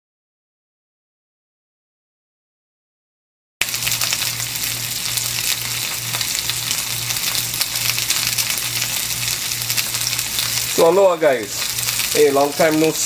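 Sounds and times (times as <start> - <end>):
low steady hum: 3.6 - 13.0
onions sizzling in oil: 3.6 - 13.0.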